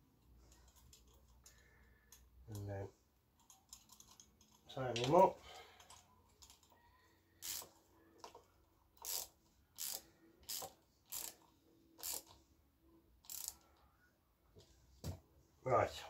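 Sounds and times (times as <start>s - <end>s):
socket ratchet clicking: 7.4s - 8.4s, 9.0s - 12.4s, 13.2s - 13.6s.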